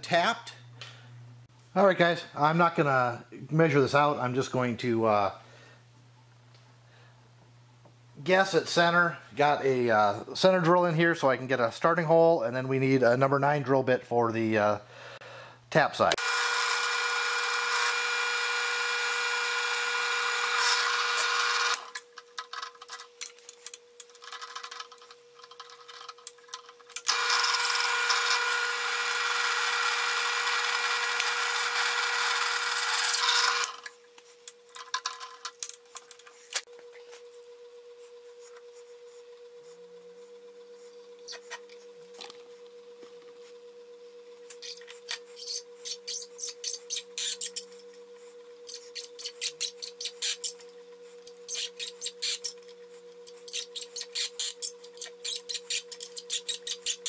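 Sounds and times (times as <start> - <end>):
drill bit cutting metal: 16.2 - 21.9, 27.1 - 33.8
drill press motor humming: 16.2 - 22.0, 27.0 - 33.9.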